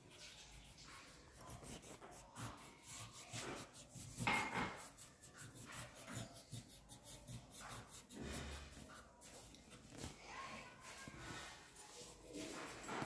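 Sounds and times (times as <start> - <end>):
pencil rubbing on paper: 0.0 - 13.0.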